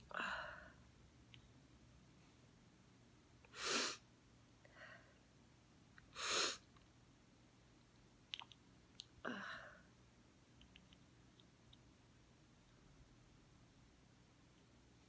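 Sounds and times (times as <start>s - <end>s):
small clicks: 7.9s - 9.1s, 10.6s - 11.9s.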